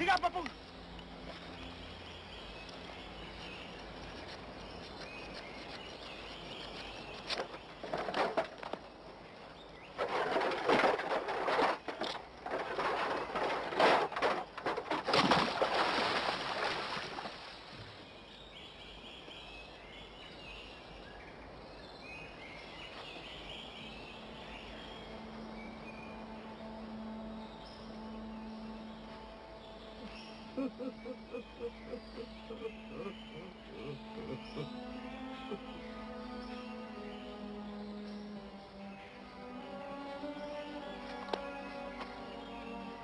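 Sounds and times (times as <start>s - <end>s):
faint bird chirps: 21.8s - 38.5s.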